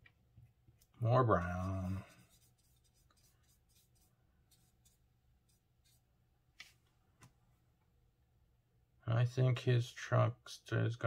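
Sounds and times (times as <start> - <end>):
paintbrush clicking and scrubbing: 0.7 - 6.8.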